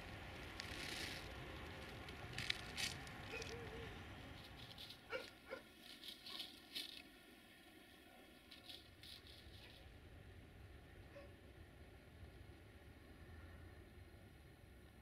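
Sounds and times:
faint ticks and rustling: 0.3s - 7.2s, 8.4s - 9.9s
dog yelping: 3.3s - 3.9s, 5.1s - 5.6s.

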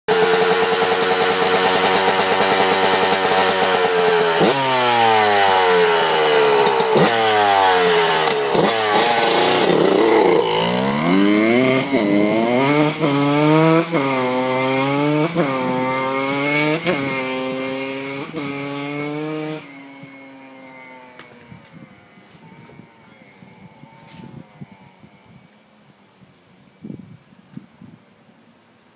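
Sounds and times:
dirt bike engine revving: 0.1s - 25.5s.

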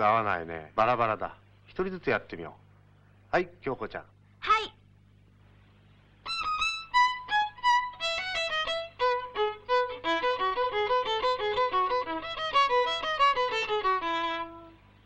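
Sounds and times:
violin playing: 6.3s - 14.8s.

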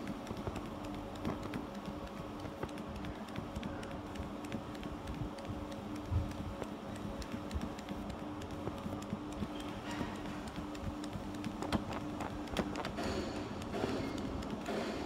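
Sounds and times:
light irregular ticking: 0.0s - 14.7s
laser cutting machine humming: 5.5s - 15.0s.

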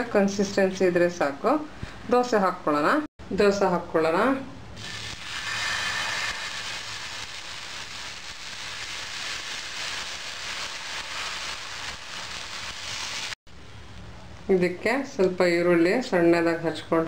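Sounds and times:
batter sizzling on hot griddle: 4.8s - 13.4s.

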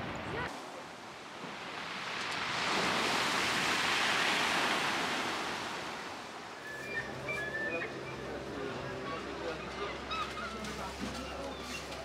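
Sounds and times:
sea wave breaking on shore: 1.3s - 6.3s.

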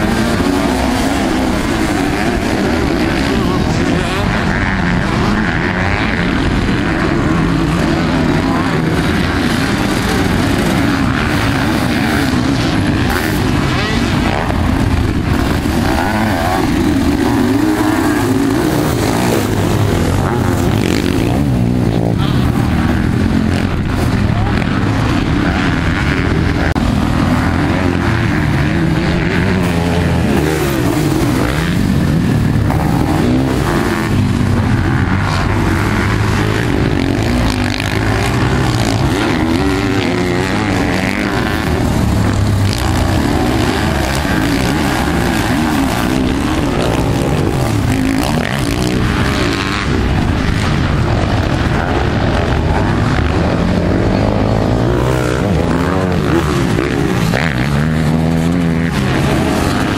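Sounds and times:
motocross engines revving: 0.0s - 59.9s.

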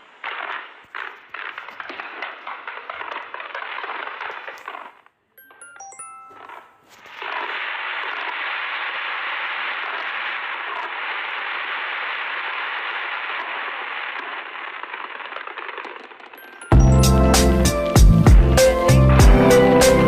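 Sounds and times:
fireworks crackling and hissing: 0.0s - 5.1s, 6.4s - 20.0s
electronic chime tones: 5.4s - 7.0s, 16.4s - 18.3s.

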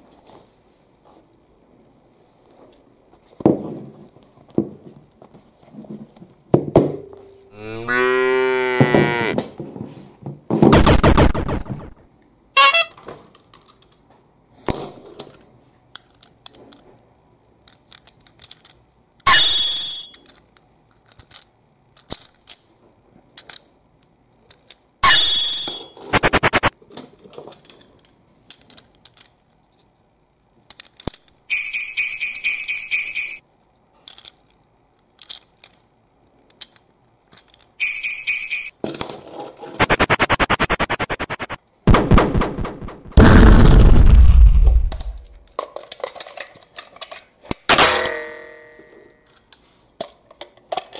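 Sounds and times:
toy buzzing: 25.0s - 26.7s, 39.8s - 41.6s.

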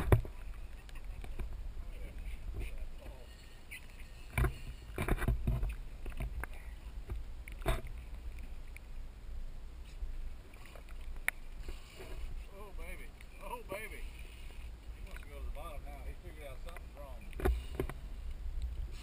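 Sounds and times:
water splashing against boat hull: 0.0s - 8.9s
low rumble of wind and water: 0.0s - 19.0s.

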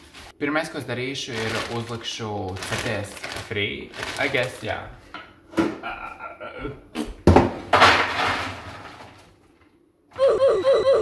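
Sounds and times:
frozen fries rattling onto metal tray: 1.3s - 4.8s, 7.7s - 9.4s.

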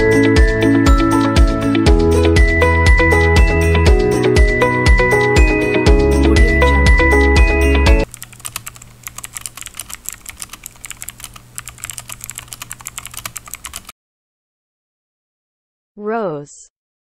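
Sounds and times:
intro music: 0.0s - 8.1s
computer keyboard typing clicks: 8.1s - 13.9s.

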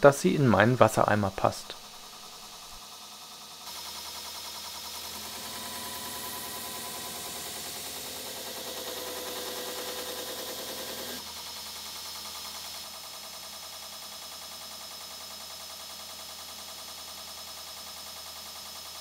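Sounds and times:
belt grinder running: 3.6s - 12.2s.

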